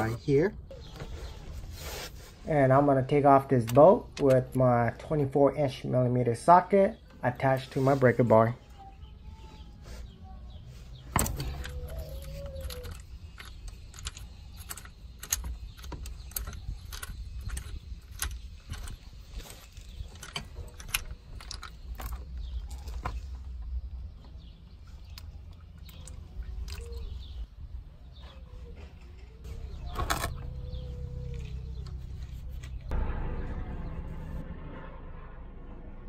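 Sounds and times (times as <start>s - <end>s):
low steady rumble: 29.4s - 36.0s.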